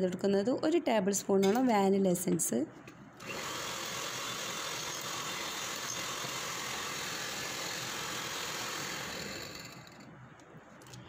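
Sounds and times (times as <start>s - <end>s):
electric hand mixer whisking batter: 3.2s - 9.9s.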